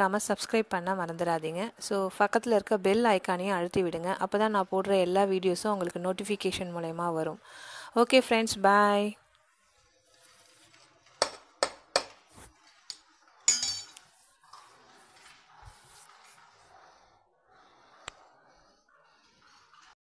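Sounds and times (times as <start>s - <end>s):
soft scratchy noise: 14.0s - 20.0s.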